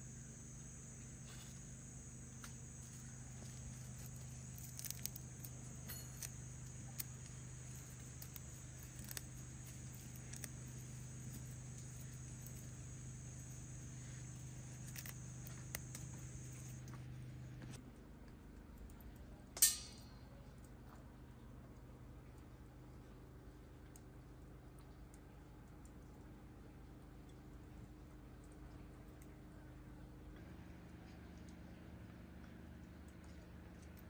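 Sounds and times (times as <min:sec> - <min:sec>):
insects chirring: 0:00.0 - 0:17.7
low steady hum: 0:00.0 - 0:34.0.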